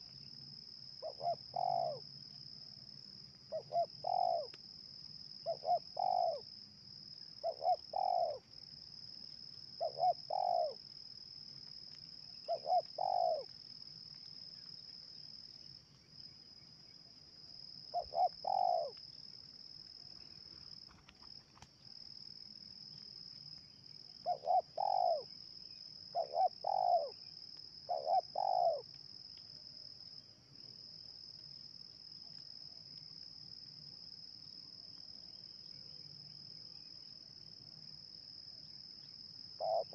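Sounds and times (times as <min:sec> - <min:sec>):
dove cooing: 0:01.0 - 0:02.0, 0:03.5 - 0:04.6, 0:05.4 - 0:06.5, 0:07.4 - 0:08.5, 0:09.8 - 0:10.8, 0:12.4 - 0:13.5, 0:17.9 - 0:19.0, 0:24.2 - 0:25.3, 0:26.1 - 0:27.2, 0:27.9 - 0:28.9, 0:39.6 - 0:39.9.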